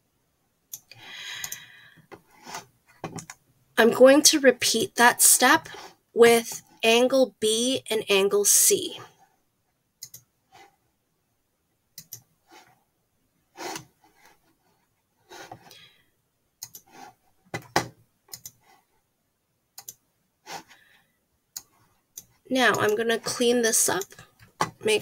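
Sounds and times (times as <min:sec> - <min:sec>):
computer mouse clicking: 0:00.7 - 0:01.7, 0:10.0 - 0:10.3, 0:12.0 - 0:12.3, 0:16.6 - 0:16.9, 0:17.6 - 0:18.6, 0:19.8 - 0:20.0, 0:21.5 - 0:23.0.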